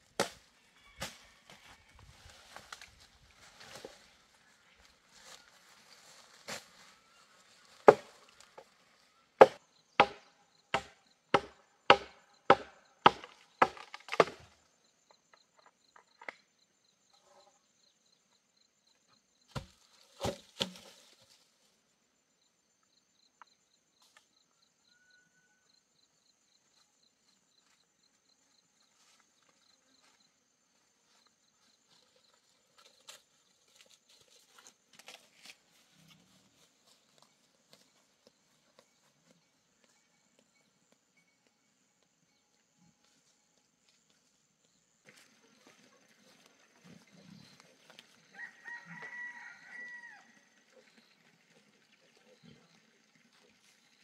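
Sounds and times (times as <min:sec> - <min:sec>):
brush rustling: 0:01.0 - 0:09.1
chopping strikes into wood: 0:07.9 - 0:08.1, 0:09.4 - 0:14.5, 0:19.5 - 0:20.9.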